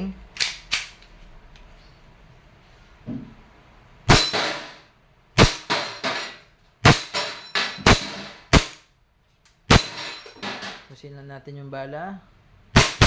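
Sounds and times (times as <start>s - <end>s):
airsoft pistol shots: 4.1s - 4.8s, 5.4s - 6.2s, 6.8s - 8.8s, 12.7s - 13.0s.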